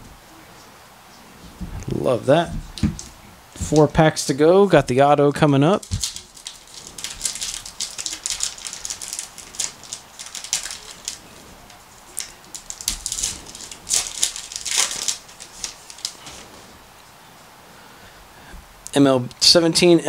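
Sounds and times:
card pack wrapper crinkling: 0:05.7 - 0:16.5.

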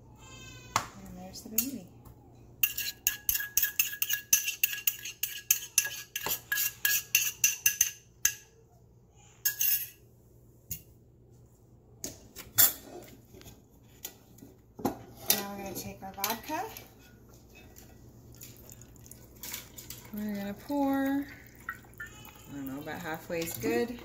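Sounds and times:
metal spoon scraping metal cup: 0:02.6 - 0:07.9.

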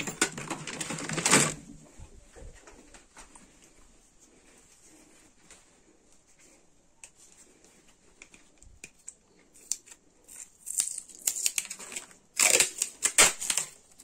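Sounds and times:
packing tape ripping off roll: 0:09.6 - 0:14.0.

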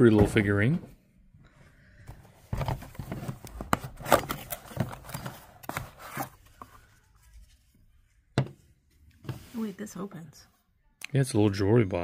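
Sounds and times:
cardboard box rustling and scraping: 0:02.5 - 0:06.8.

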